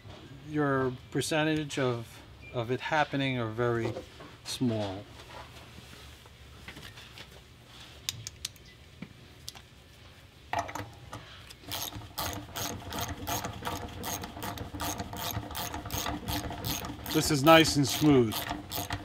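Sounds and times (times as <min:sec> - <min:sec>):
ratchet clicking: 0:11.7 - 0:19.0.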